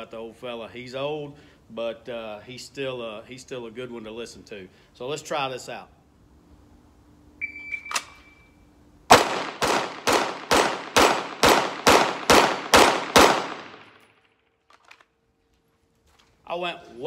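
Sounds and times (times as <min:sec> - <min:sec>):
shot timer beep: 0:07.4 - 0:08.6
pistol shots: 0:09.1 - 0:14.1.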